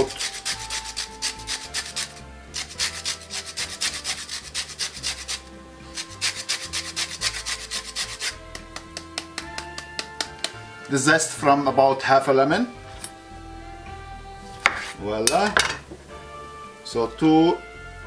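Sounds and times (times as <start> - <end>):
zester scraping lemon rind: 0.0 - 9.5.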